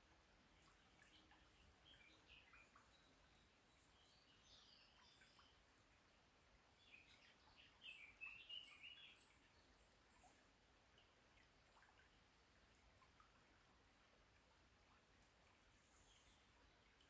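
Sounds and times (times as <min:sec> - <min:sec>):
faint hiss: 0:00.0 - 0:17.0
songbirds warbling chirps: 0:01.0 - 0:05.6, 0:06.8 - 0:10.4.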